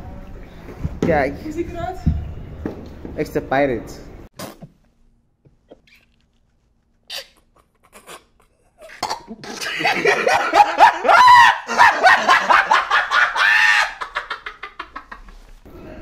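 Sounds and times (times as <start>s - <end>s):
man laughing hard: 7.4s - 15.5s.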